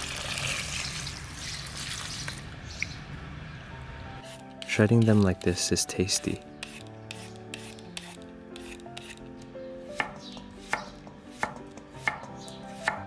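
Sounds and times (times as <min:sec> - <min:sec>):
knife chopping on wooden board: 0:06.6 - 0:09.3, 0:09.9 - 0:13.0.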